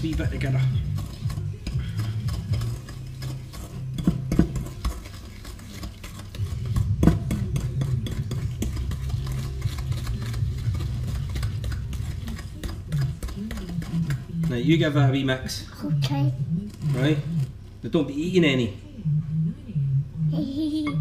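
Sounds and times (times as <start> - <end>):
spoon scraping glass bowl: 0.0 - 15.2, 16.7 - 17.6.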